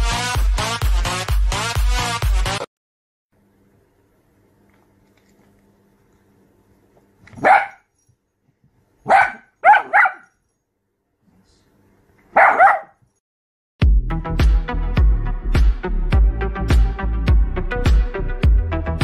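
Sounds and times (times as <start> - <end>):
small dog barking: 7.3 - 7.9, 9.0 - 10.4, 12.3 - 13.0.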